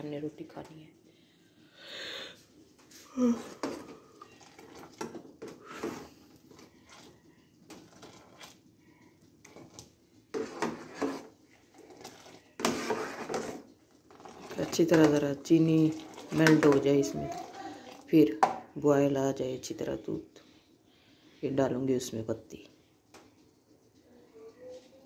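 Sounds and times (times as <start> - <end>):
spoon stirring in saucepan: 2.8 - 18.7
metal pots and utensils clattering: 9.4 - 18.7.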